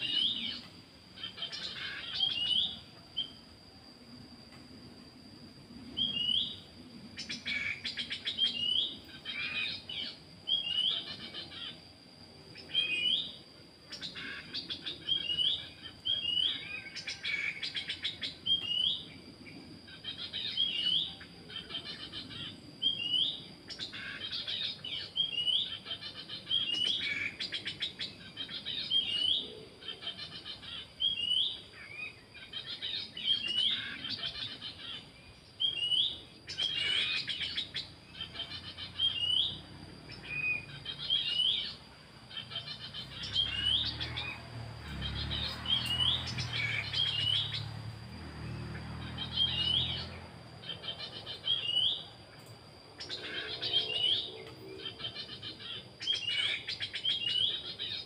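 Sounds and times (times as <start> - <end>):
bird whistling call: 0.0 - 3.5, 5.9 - 11.8, 12.5 - 19.2, 19.8 - 47.7, 49.0 - 52.4, 53.0 - 58.0
steady high-pitched tone: 0.0 - 55.9
bird chattering: 23.7 - 47.7, 49.0 - 52.2.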